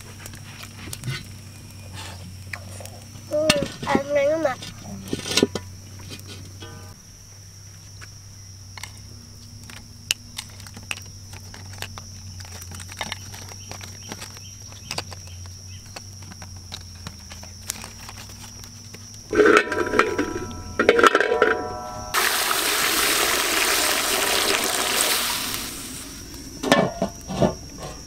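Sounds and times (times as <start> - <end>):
high insect drone: 0.0 - 28.0
low hum: 19.3 - 22.3.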